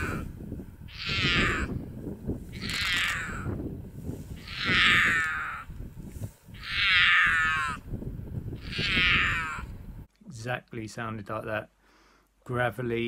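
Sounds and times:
puma calling: 0.0 - 3.6, 4.3 - 5.8, 6.5 - 7.9, 8.6 - 9.8.

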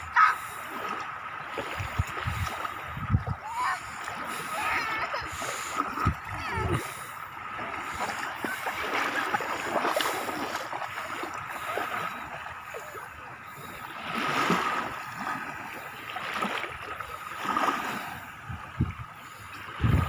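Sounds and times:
feet splashing in shallow water: 0.0 - 20.0
small waves lapping on shore: 0.0 - 20.0.

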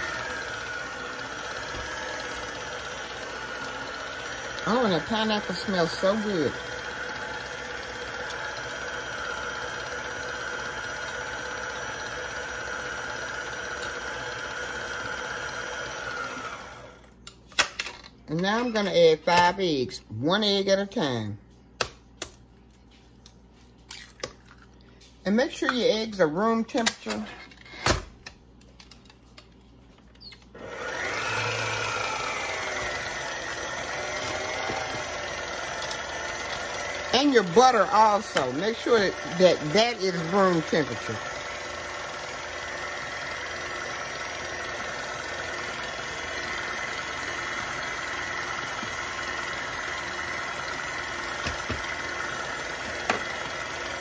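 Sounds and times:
electric stand mixer humming: 0.0 - 17.2, 30.6 - 54.0.

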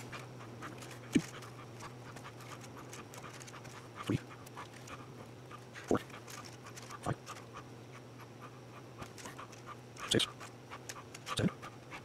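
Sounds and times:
wire rustling and ticking: 0.0 - 7.6
steady low hum: 0.0 - 12.0.

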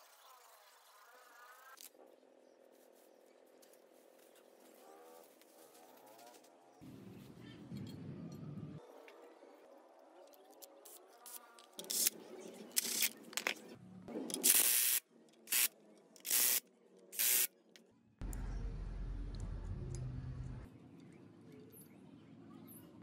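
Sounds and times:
low steady hum: 18.2 - 20.7.

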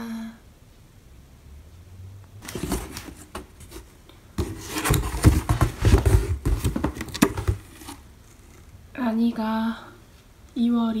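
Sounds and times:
plastic pouches and cardboard rustling: 2.4 - 8.7.

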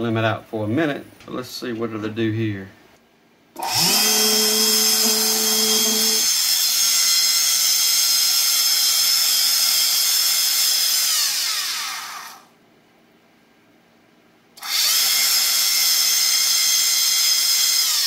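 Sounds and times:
electric motor high whine: 3.6 - 12.5, 14.6 - 18.0
motor winding down: 3.6 - 12.5, 14.6 - 18.0.

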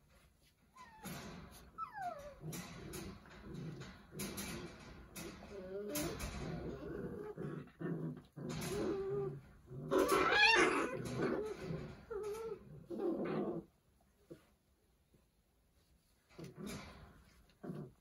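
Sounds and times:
puppies whining and crying: 0.7 - 2.6, 9.9 - 13.3.

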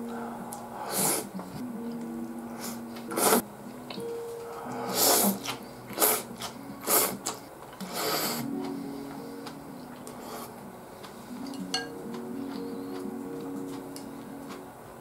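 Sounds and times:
quiet background music: 0.0 - 15.0.

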